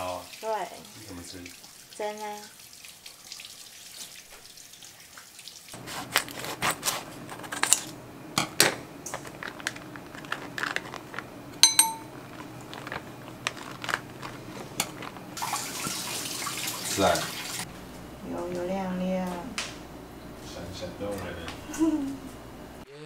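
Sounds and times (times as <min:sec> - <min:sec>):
plastic bag crinkling: 0:09.1 - 0:11.4, 0:12.1 - 0:15.4
ceramic bowl clinking: 0:11.6 - 0:12.4.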